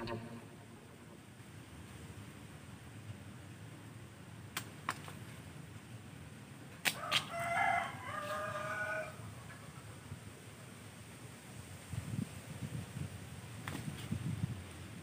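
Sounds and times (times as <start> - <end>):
rooster crowing: 7.0 - 9.2.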